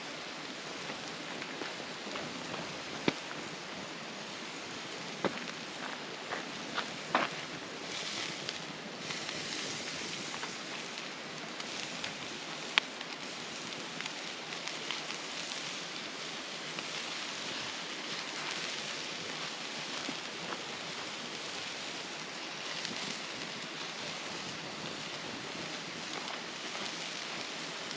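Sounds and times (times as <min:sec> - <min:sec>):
campfire crackling: 0:00.0 - 0:27.9
fire pop: 0:01.0 - 0:03.6.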